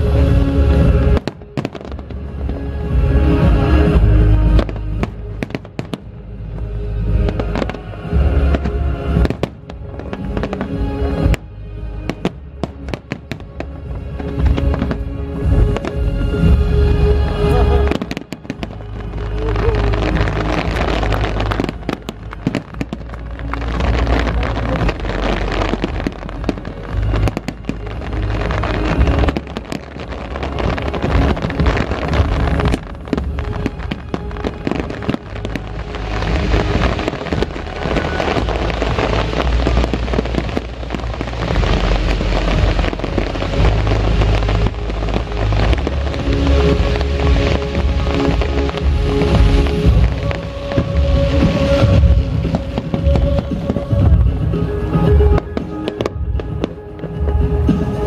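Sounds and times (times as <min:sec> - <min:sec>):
fireworks booming: 0:00.0 - 0:58.0
fireworks crackling: 0:00.0 - 0:58.0
music: 0:00.0 - 0:58.0.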